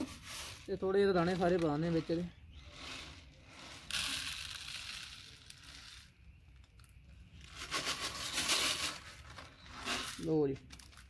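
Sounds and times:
grain pouring into plastic tray: 2.9s - 6.1s.

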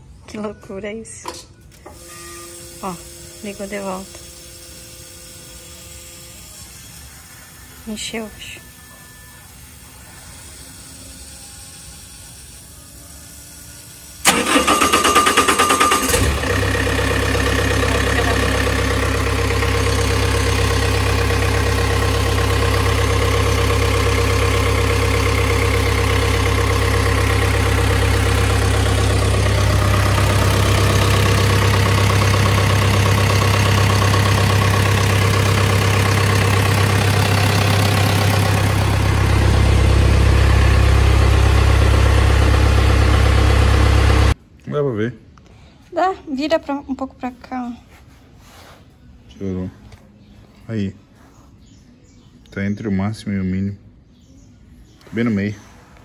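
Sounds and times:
diesel engine idling: 13.2s - 44.4s
engine starter cranking: 14.0s - 44.4s.

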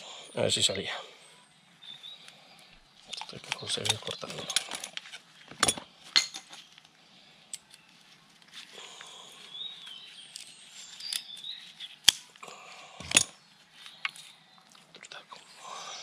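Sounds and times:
tools clicking and snapping roots: 3.1s - 6.4s, 10.3s - 12.4s.

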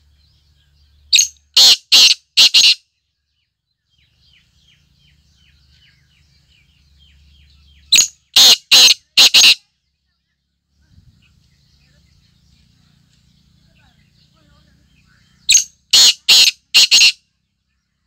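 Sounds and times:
faint small birds chirping: 0.0s - 18.0s
francolin harsh call: 1.2s - 2.8s, 8.0s - 9.6s, 15.4s - 17.2s.

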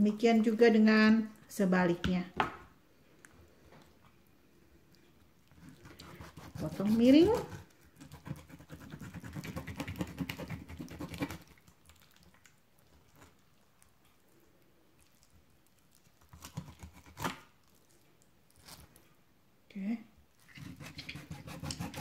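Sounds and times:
knife sawing through fish scales: 5.8s - 11.4s, 20.5s - 22.0s.

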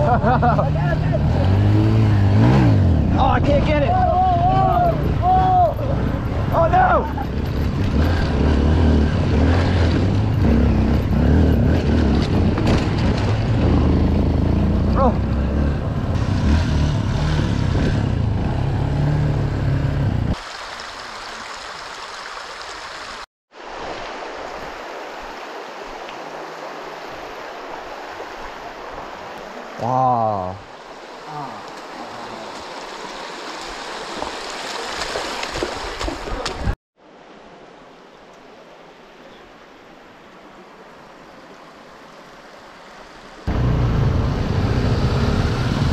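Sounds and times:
person shouting: 3.8s - 6.0s
stream running over stones: 20.3s - 43.5s.

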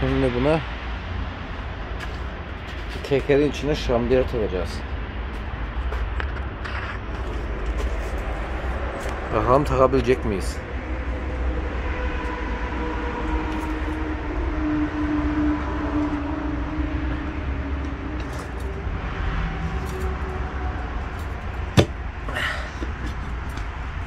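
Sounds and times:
tyre lever prying tyre off rim: 21.8s - 22.0s.

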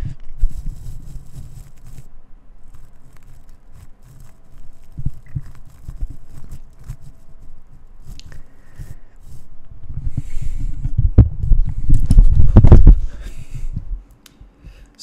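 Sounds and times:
microphone rubbing on stubble: 0.0s - 14.0s
microphone handling thumps: 9.9s - 14.0s.

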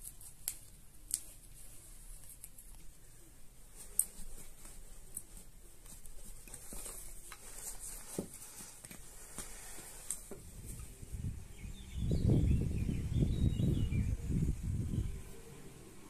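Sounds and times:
hands shaping bread dough: 0.0s - 13.6s
wind rumble on microphone: 10.4s - 16.0s.

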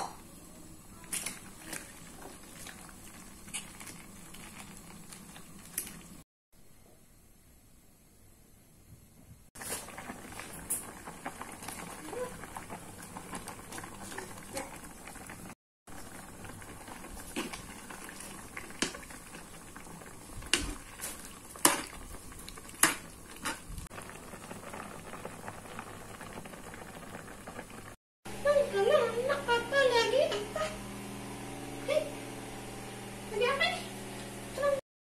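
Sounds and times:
soup bubbling in a pan: 1.1s - 6.2s, 9.6s - 28.0s.

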